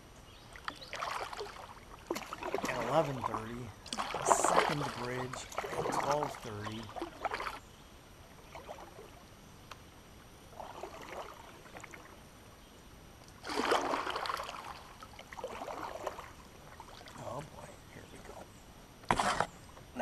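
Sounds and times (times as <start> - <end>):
kayak paddle splashing and dripping: 0.4 - 9.9, 10.5 - 12.3, 13.3 - 17.4.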